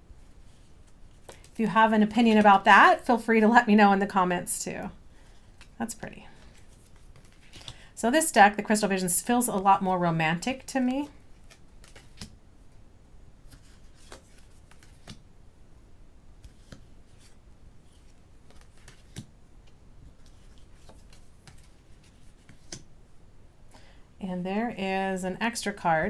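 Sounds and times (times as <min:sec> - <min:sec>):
cards clicking and sliding: 0:00.4 - 0:01.6, 0:06.4 - 0:07.8, 0:11.1 - 0:12.4, 0:13.4 - 0:15.2, 0:16.4 - 0:22.9.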